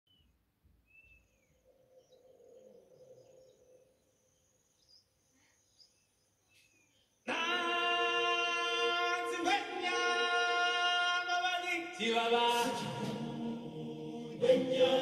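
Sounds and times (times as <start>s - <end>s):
faint high chirps: 0.1s - 7.2s.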